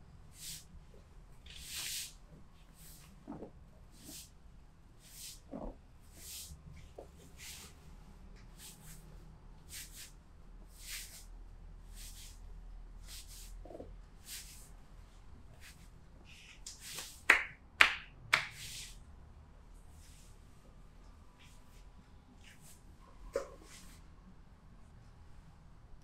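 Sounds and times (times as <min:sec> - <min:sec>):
hand slapping a back: 0:16.6 - 0:18.9.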